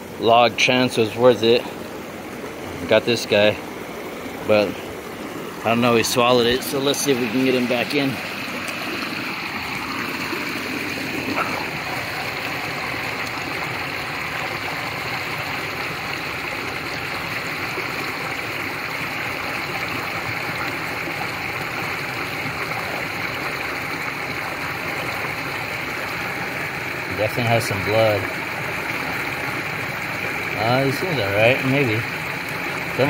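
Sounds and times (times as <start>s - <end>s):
creek water rushing over rocks: 0.0s - 33.0s.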